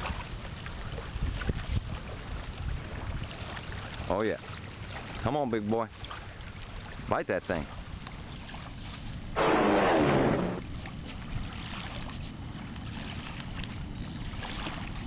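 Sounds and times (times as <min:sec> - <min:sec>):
wind: 0:00.0 - 0:15.0
loud sound falling in pitch: 0:09.4 - 0:10.6.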